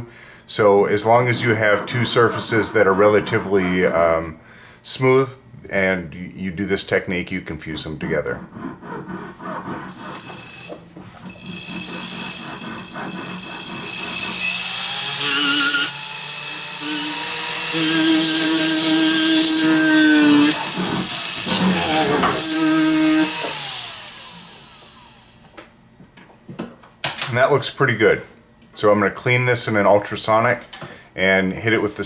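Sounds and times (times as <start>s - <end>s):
rotary handpiece grinding metal: 9.4s - 24.4s.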